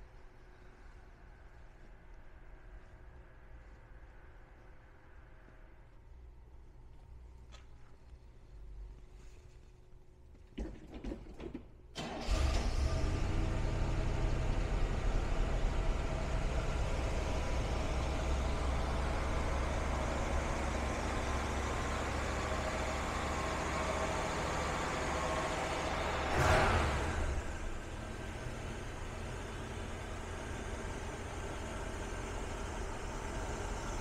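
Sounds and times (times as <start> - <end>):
car engine idling: 12.0 - 34.0.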